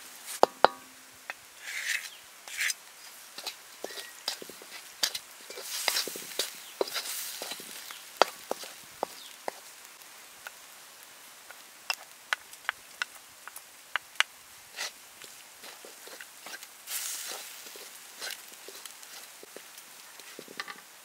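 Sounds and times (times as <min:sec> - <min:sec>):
spatula scraping wok: 0:00.2 - 0:10.0, 0:14.7 - 0:20.8
spatula tapping wok: 0:00.3 - 0:01.4, 0:03.4 - 0:09.8, 0:11.5 - 0:14.3, 0:15.2 - 0:20.8.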